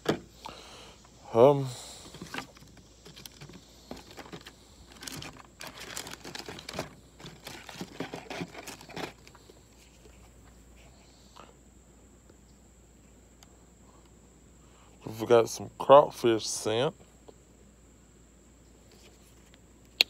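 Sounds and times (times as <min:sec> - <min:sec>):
plastic packaging crinkling: 0:02.1 - 0:09.4.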